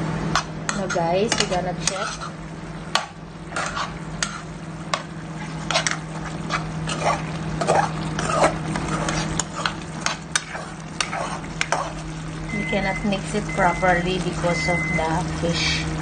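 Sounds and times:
steady low hum: 0.0 - 16.0
spatula scraping pan: 0.4 - 2.4, 3.0 - 12.1
curry simmering: 0.4 - 16.0.

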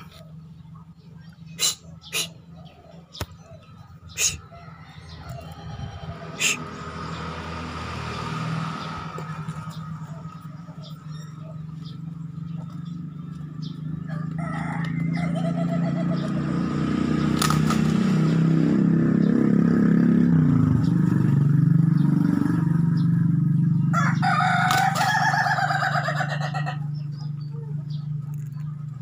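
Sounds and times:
engine hum of passing vehicle: 0.0 - 29.0
rooster crowing: 4.2 - 6.7, 14.0 - 16.4, 23.9 - 26.9.

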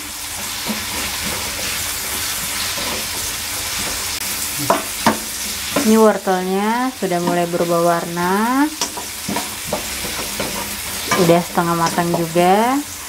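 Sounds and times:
food sizzling in hot oil: 0.0 - 13.0
spatula stirring in a wok: 0.0 - 13.0
spatula knocking against wok: 2.7 - 6.0, 8.8 - 12.4.

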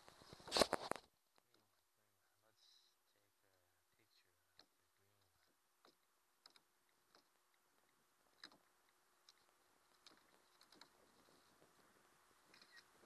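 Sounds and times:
faint hiss: 0.0 - 13.0
faint clicks and light taps: 3.4 - 12.9.

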